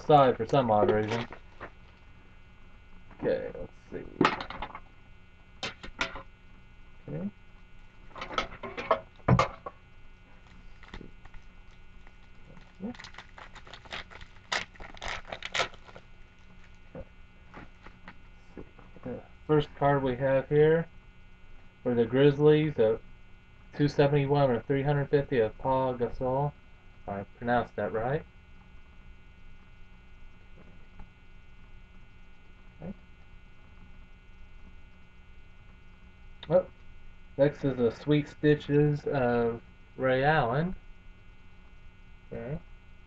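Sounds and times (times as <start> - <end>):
faint electrical hum: 0.0 - 43.0
packaging being torn and crinkled: 10.5 - 16.8.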